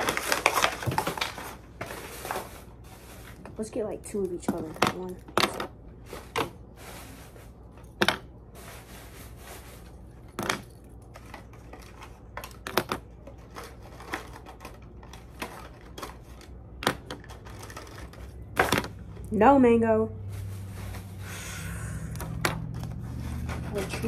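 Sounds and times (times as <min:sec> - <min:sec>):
pencils clicking into organizer: 0:10.4 - 0:18.9.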